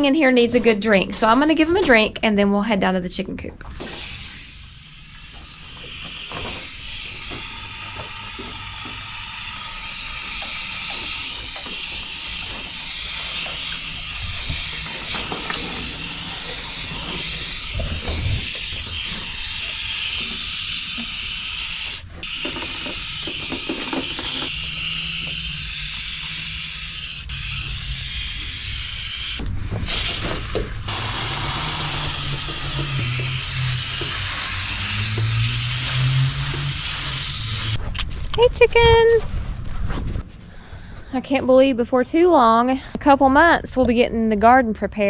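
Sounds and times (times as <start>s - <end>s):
hose nozzle spraying water: 3.8s - 37.8s.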